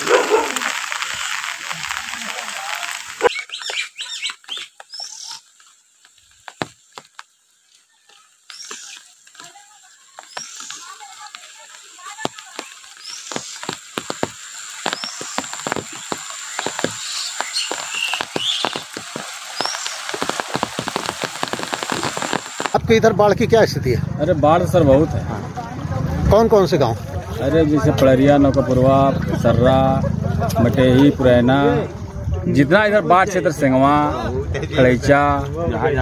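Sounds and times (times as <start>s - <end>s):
birds chirping: 2.9s - 22.8s
frogs croaking: 8.4s - 22.8s.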